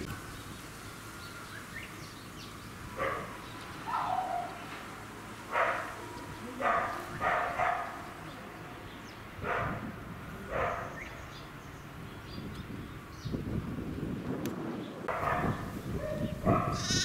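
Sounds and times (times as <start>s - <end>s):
short animal calls: 16.7s - 17.0s.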